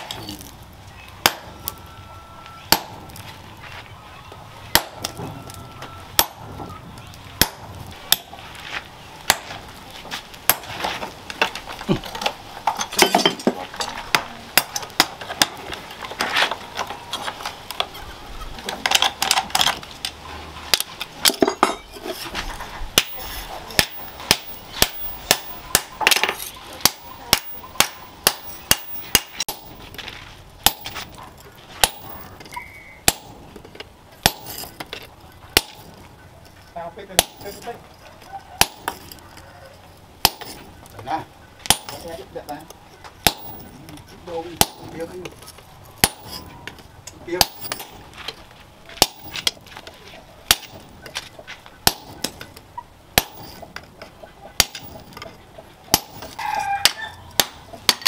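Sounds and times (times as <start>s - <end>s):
hammer ringing on hot steel: 4.7s - 6.5s, 30.6s - 31.1s.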